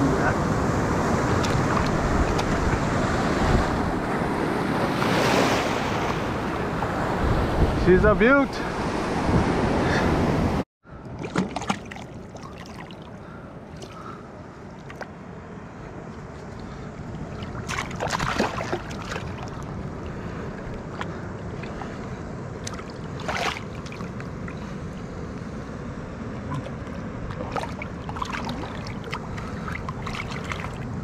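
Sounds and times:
shallow water washing: 0.0s - 7.2s, 11.1s - 15.1s, 16.2s - 25.3s, 26.2s - 31.0s
wind: 0.0s - 31.0s
fish splashing in water: 11.2s - 13.1s, 17.3s - 19.7s, 22.6s - 24.2s, 26.5s - 31.0s.

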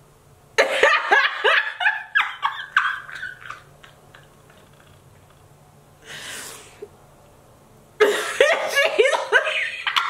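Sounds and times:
woman laughing: 0.6s - 4.9s, 8.0s - 10.0s.

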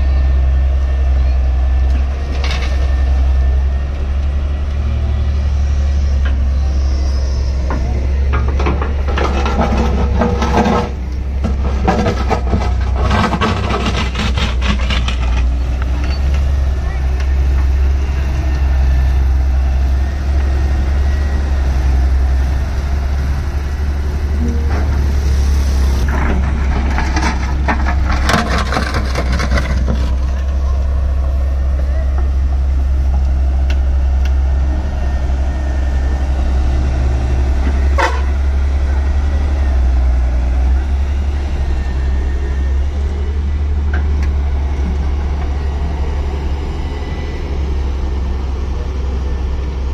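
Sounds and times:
diesel engine droning: 0.0s - 49.9s
excavator bucket scraping soil: 8.4s - 16.2s, 24.3s - 30.8s.

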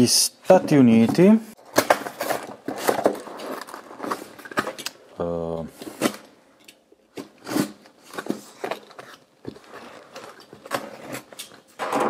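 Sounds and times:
cardboard flaps rustling: 0.5s - 4.8s.

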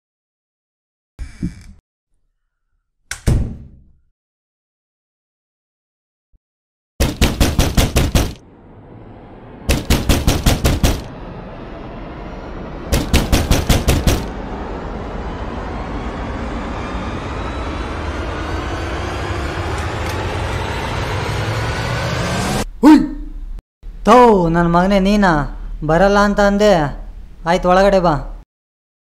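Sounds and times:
rapid knocking on a door: 7.0s - 8.4s, 9.7s - 11.1s, 13.0s - 14.3s
low droning hum: 7.7s - 24.1s.

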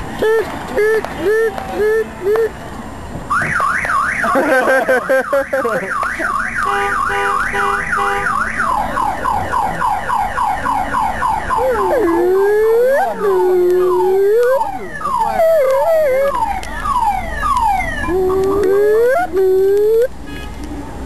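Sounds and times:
car alarm cycling tones: 3.3s - 20.1s.

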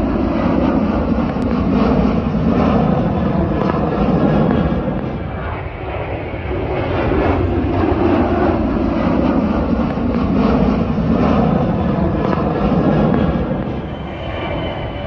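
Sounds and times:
jet airliner engines rumbling: 0.0s - 15.0s.

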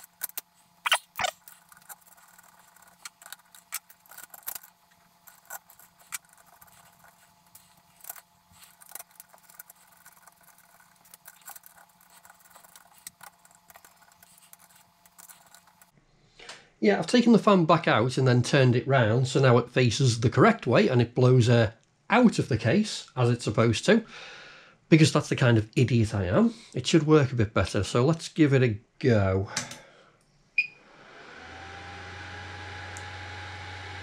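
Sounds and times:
small clicks and scrapes: 0.0s - 16.0s.

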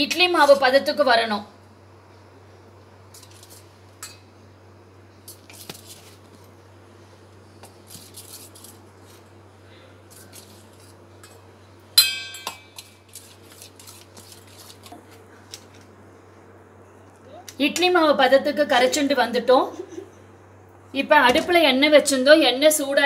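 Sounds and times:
loud ringing metal clink: 12.0s - 12.8s.

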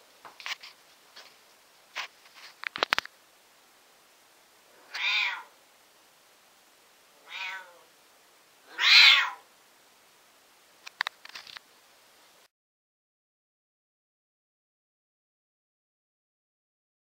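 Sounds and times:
cat meowing: 4.8s - 5.6s, 7.2s - 7.9s, 8.7s - 9.5s.

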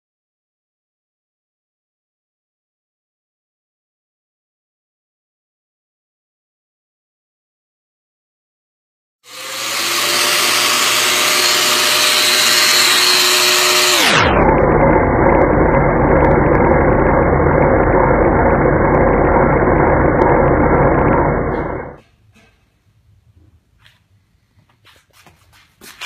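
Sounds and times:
power tool motor hissing and humming: 9.3s - 22.0s.

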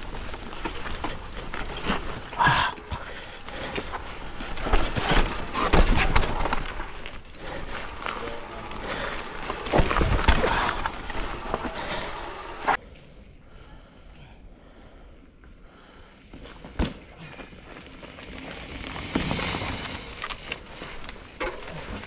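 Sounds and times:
bike knocking over rocks: 0.0s - 12.8s
bike rattling: 0.0s - 12.8s, 16.2s - 22.0s
tyres crunching over stones: 0.0s - 12.8s, 17.2s - 22.0s.

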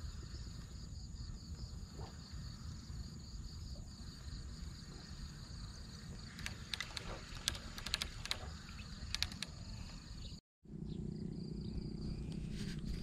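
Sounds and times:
insects calling: 0.0s - 12.5s
low rumble: 10.6s - 13.0s.

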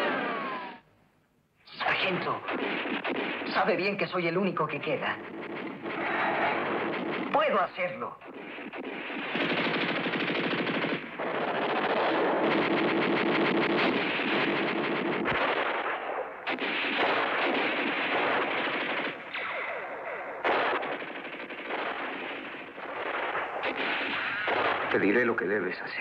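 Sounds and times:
machine-gun fire: 0.0s - 0.8s, 1.8s - 25.5s.

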